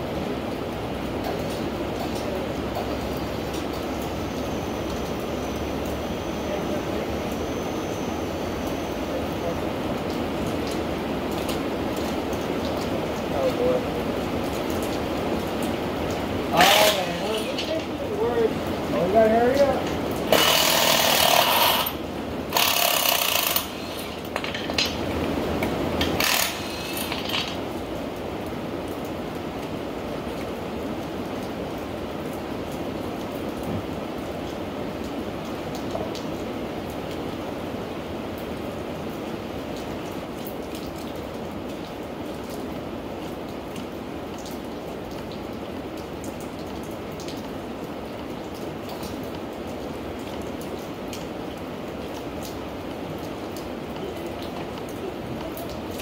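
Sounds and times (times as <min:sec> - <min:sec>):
rain falling: 0:00.0 - 0:56.0
raindrops ticking close by: 0:00.0 - 0:56.0
hand-held power tool running: 0:20.3 - 0:21.9, 0:22.5 - 0:24.2, 0:26.2 - 0:27.2.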